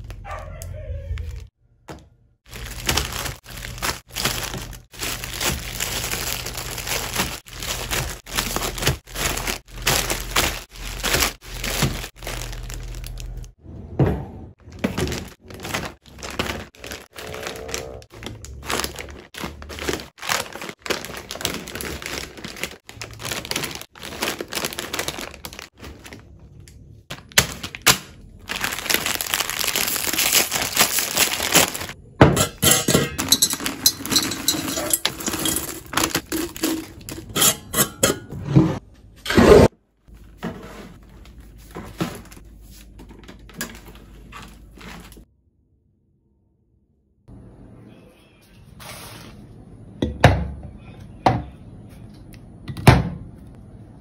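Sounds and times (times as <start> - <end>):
packets and baskets thunking: 1.9 - 12.8, 14.0 - 26.2
foil packets crinkling: 2.4 - 13.6, 14.8 - 32.0, 33.2 - 37.3.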